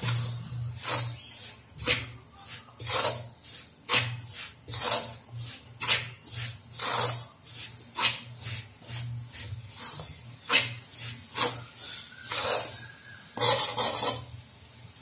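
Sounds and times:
metal spoon scraping a pan: 0.0 - 14.4.

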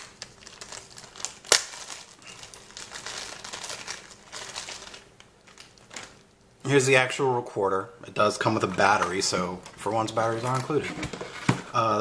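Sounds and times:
crinkling bag packaging: 0.0 - 6.4.

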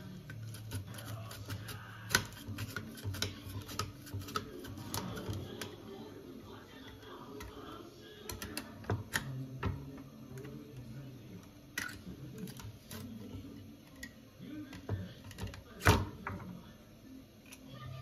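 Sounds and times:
grater clicking and knocking: 0.2 - 5.8.

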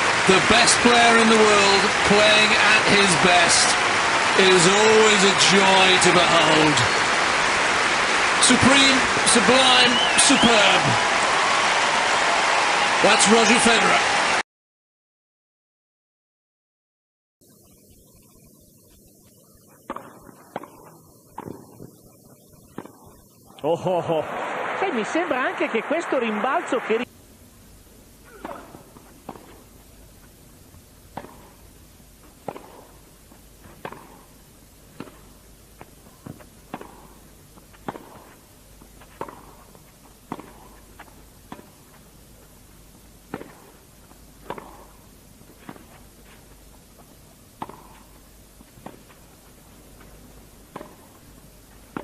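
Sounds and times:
tennis ball hit by racquet: 21.4 - 21.8, 28.3 - 29.8, 31.1 - 31.6, 32.4 - 34.4, 35.0 - 38.4, 39.0 - 41.9, 43.3 - 43.8, 44.4 - 49.4, 50.0 - 51.2.

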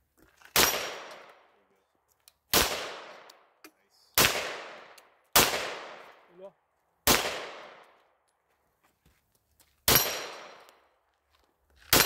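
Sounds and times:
pistol shot: 0.6 - 1.4, 2.5 - 3.4, 4.2 - 6.2, 7.0 - 8.0, 9.9 - 10.7.

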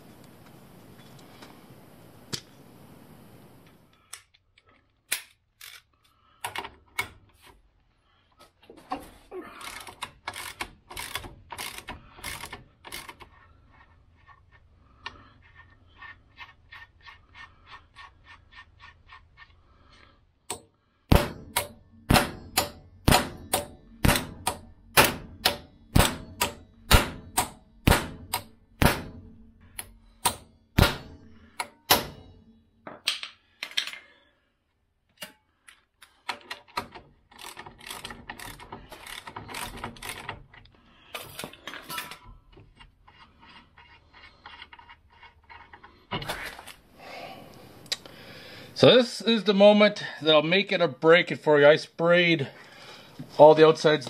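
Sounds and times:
ratchet clicking: 9.6 - 13.4, 37.3 - 40.4.

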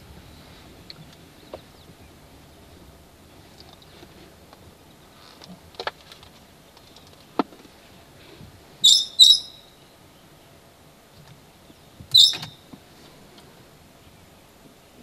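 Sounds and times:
bird calls: 0.3 - 2.3, 8.8 - 10.6, 11.6 - 12.7.

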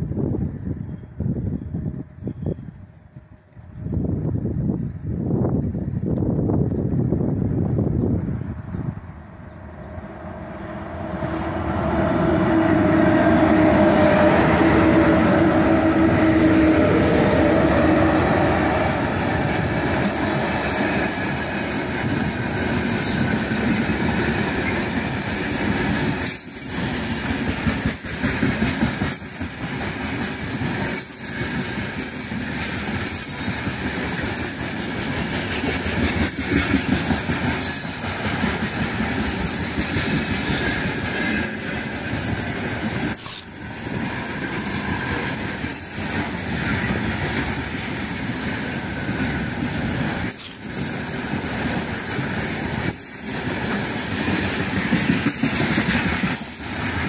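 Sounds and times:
electric locomotives humming: 0.0 - 57.0
wheels clacking over rail joints: 18.8 - 57.0.

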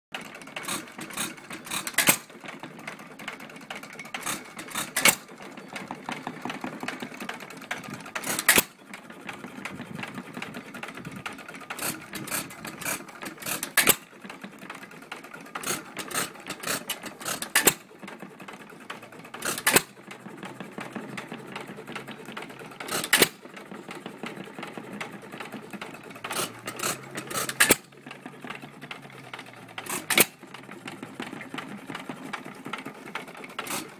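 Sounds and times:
valve gear clatter: 0.5 - 2.3, 4.0 - 5.3, 8.1 - 8.8, 11.2 - 14.1, 15.6 - 17.9, 19.4 - 20.0, 22.8 - 23.4, 25.8 - 27.9, 28.9 - 31.5, 33.5 - 33.9.

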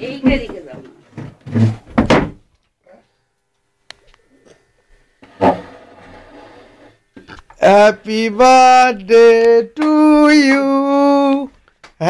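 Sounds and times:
dull thumps and knocks: 1.2 - 2.4.

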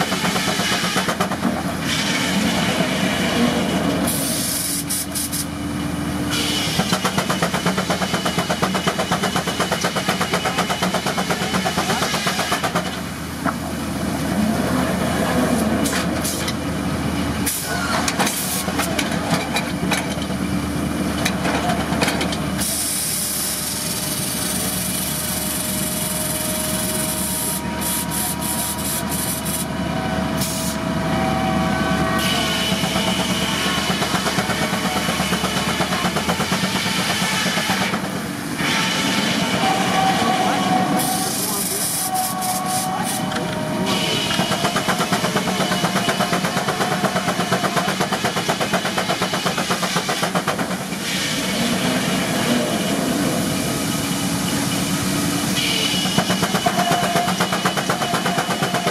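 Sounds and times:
sawmill whining: 0.0 - 58.9
compressed air hissing: 4.1 - 5.6, 22.6 - 29.7, 30.4 - 30.8, 41.0 - 46.5.

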